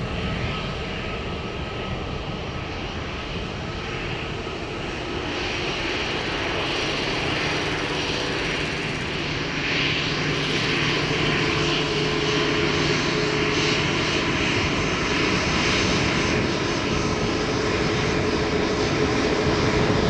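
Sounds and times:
jet engines hissing: 2.4s - 18.2s.

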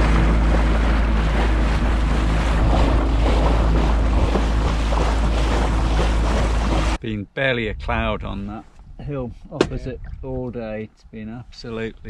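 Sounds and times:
outboard motor running: 0.0s - 7.0s
water rushing along hull: 0.0s - 7.0s
wind buffeting microphone: 0.0s - 7.0s, 7.6s - 10.7s.

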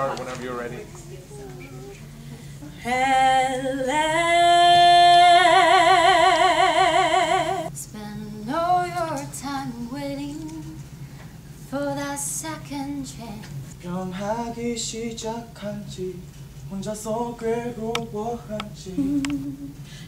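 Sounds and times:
woman singing long vibrato note: 1.3s - 10.7s.

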